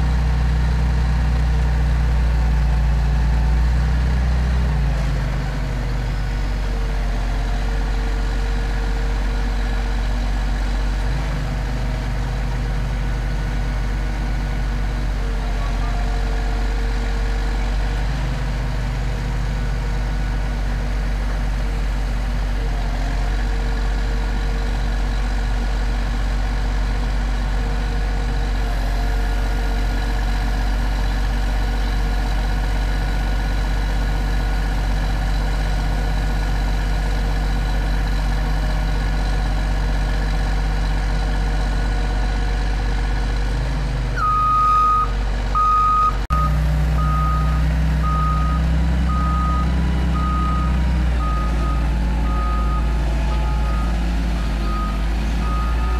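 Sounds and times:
diesel engine running: 0.0 - 55.9
backup alarm beeping: 44.2 - 50.7.

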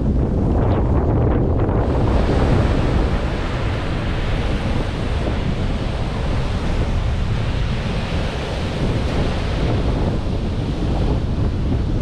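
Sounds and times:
wind buffeting microphone: 0.0 - 12.0
surf washing onto beach: 0.1 - 12.0.

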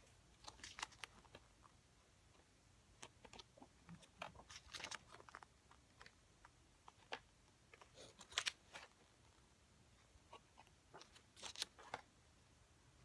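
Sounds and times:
book pages being turned: 0.4 - 1.8, 3.0 - 9.3, 10.3 - 12.1.

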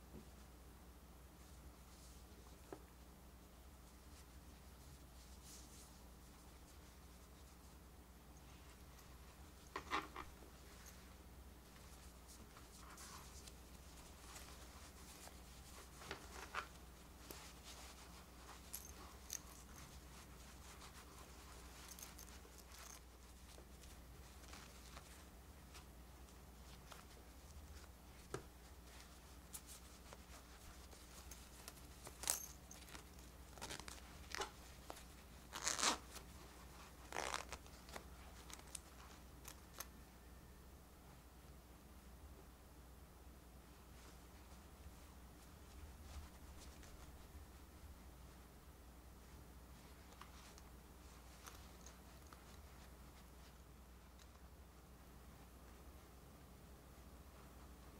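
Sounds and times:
fingers rustling plush toy: 3.7 - 40.0, 43.7 - 56.2
metal zipper being zipped: 35.5 - 36.2, 36.8 - 38.0.

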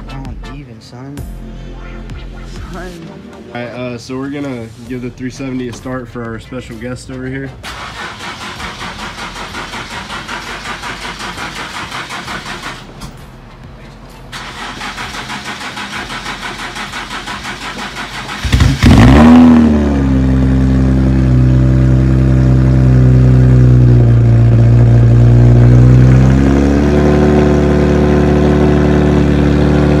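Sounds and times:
engine revving and idling: 4.9 - 30.0
car engine cranking on starter: 7.4 - 13.3, 14.3 - 19.9.

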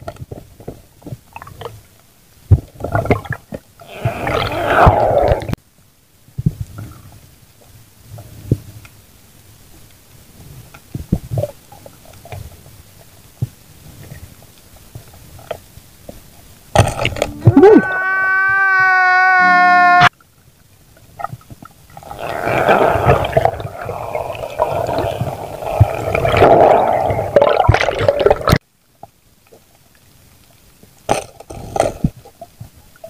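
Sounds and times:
underwater rushing noise: 3.8 - 5.6, 22.0 - 28.6.

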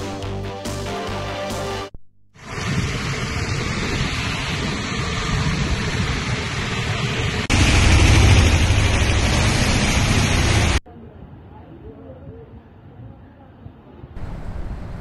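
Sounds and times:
deep rumble: 2.4 - 10.8
heavy rain hissing: 2.4 - 10.8.

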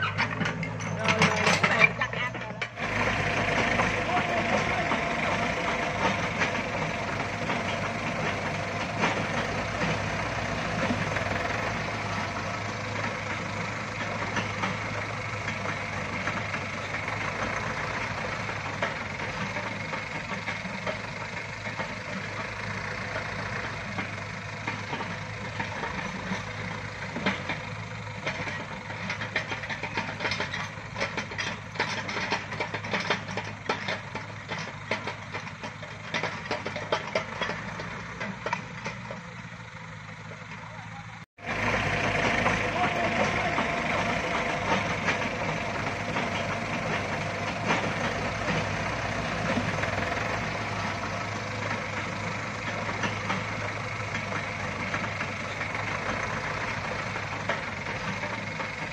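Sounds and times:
clicks and knocks: 0.0 - 2.8
diesel engine running: 0.0 - 58.9.

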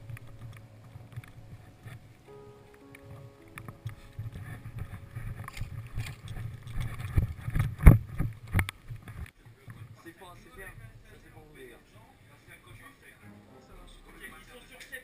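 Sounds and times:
wind and handling rumble: 0.0 - 9.9.

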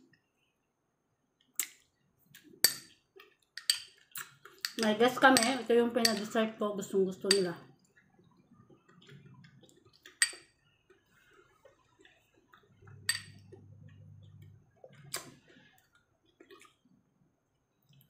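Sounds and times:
spoon clinking against bowl: 3.6 - 4.0, 4.6 - 6.4, 7.3 - 7.5, 10.2 - 10.5, 12.9 - 13.6
soft low hum: 10.6 - 16.3.

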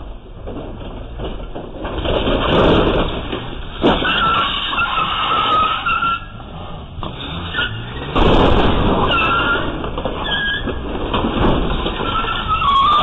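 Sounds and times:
car engine running hard: 0.0 - 12.7
tyres squealing on concrete: 2.4 - 13.0.

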